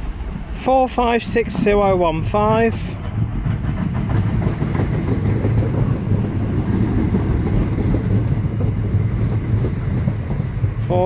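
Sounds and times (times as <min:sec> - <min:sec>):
train wheels rumbling: 0:00.0 - 0:11.0.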